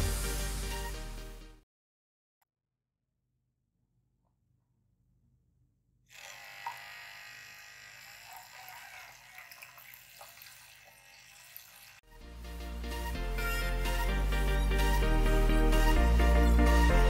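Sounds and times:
small motor whine: 6.1 - 12.0
water jet splashing into tub: 8.2 - 12.0.

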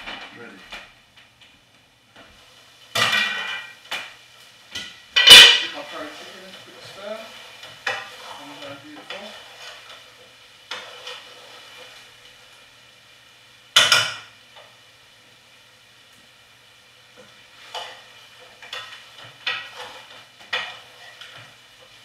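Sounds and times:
faint sizzle: 0.0 - 22.0.

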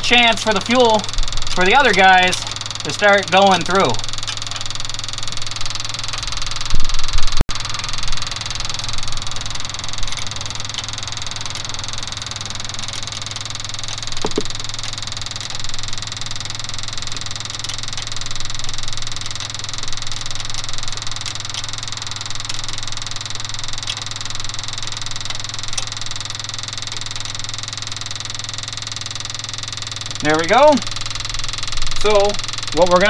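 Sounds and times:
steady mechanical hum: 0.0 - 33.0
faint wrench clicks: 8.0 - 32.9.

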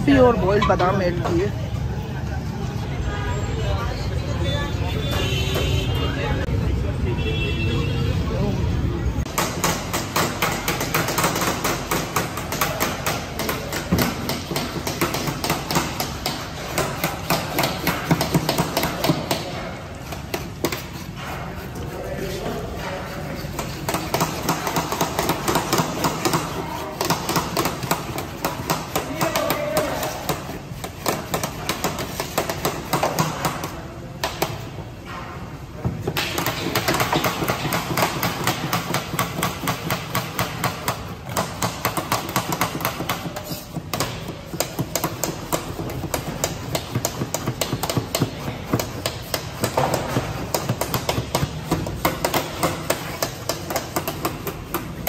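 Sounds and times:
kitchen utensils knocking and clattering: 0.0 - 1.6, 9.3 - 21.8.

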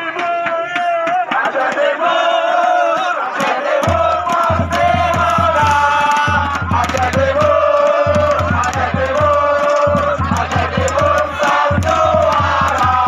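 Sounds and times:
crowd chanting and singing: 0.0 - 13.0
sharp beats: 3.4 - 13.0.

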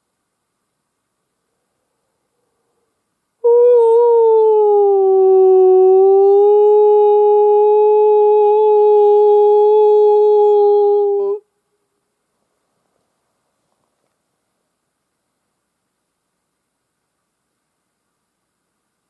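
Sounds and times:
imitation wolf howl: 3.4 - 11.4.

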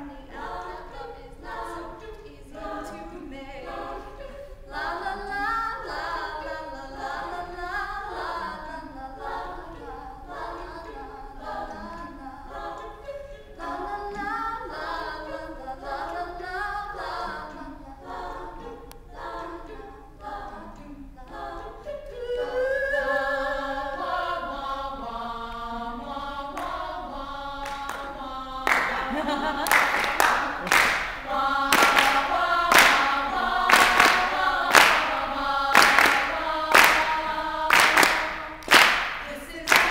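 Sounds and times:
women singing in harmony: 0.0 - 39.9
people clapping in time: 27.6 - 28.1, 28.7 - 39.9.

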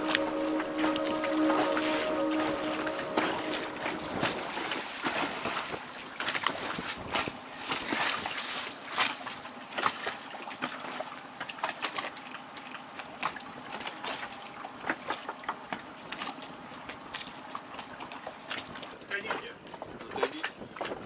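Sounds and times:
water lapping against a boat hull: 3.8 - 21.0
small splashes and ticks: 5.0 - 21.0.

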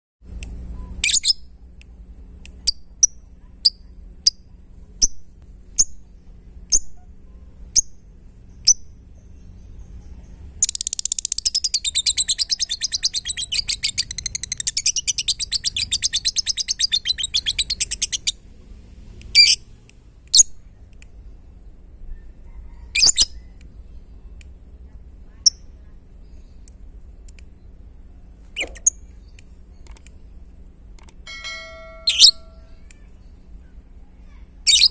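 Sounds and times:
lovebird chirping: 8.5 - 18.4, 19.3 - 19.6, 28.5 - 29.9, 31.3 - 32.8
rapid clicking chirps: 10.6 - 18.4.

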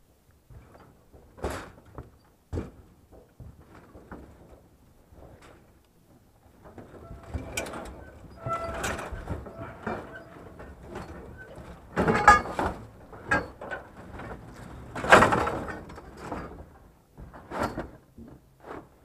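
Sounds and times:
scrap metal rattling and scraping: 6.6 - 16.8.

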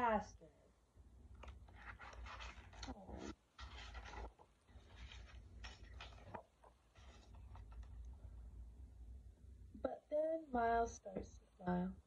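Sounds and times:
paper rustling and scraping: 1.4 - 8.1
stiff book pages turning: 1.4 - 8.1.

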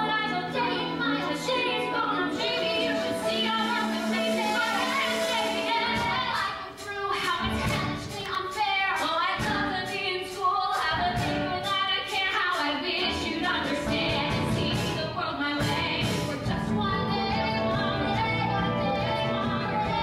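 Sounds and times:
instrumental accompaniment: 0.0 - 20.0
women singing a duet: 0.0 - 20.0.

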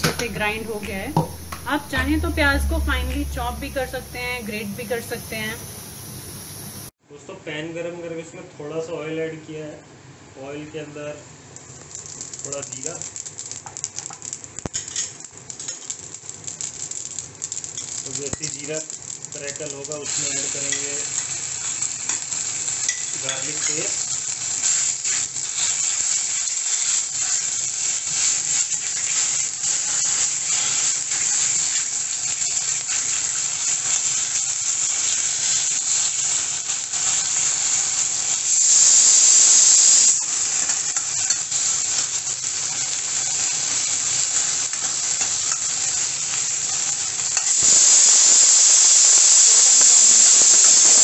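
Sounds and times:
spices sizzling in hot oil: 0.0 - 7.0, 11.5 - 51.0.

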